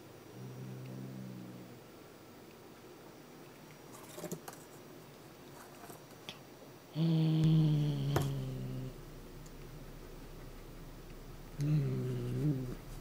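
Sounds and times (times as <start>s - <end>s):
cat growling: 0.3s - 1.9s, 7.0s - 9.0s, 11.6s - 12.9s.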